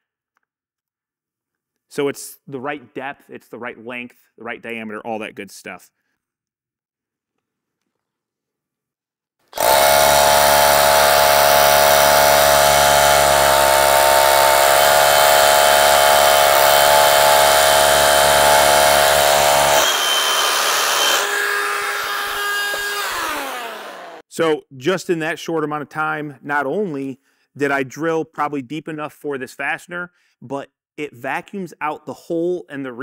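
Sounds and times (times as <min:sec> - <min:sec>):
rotary hammer drilling concrete: 0:09.5 - 0:24.3
dust extractor vacuuming: 0:09.6 - 0:24.2.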